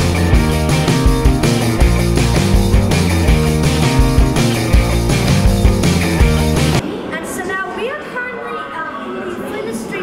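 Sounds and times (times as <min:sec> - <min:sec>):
rock music with drum beat: 0:00.0 - 0:06.8.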